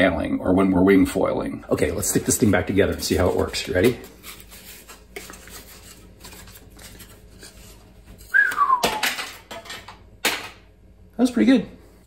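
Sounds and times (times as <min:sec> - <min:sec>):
light rubbing and scraping: 0:01.8 - 0:08.4
whistle falling in pitch: 0:08.3 - 0:09.2.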